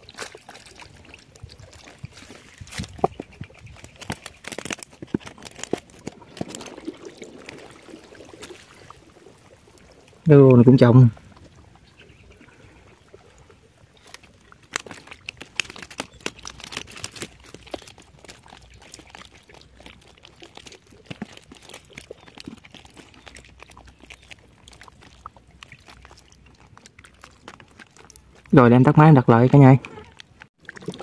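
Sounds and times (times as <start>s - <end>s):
wire-mesh trap crackling and rustling: 0.0s - 9.3s, 14.0s - 28.5s.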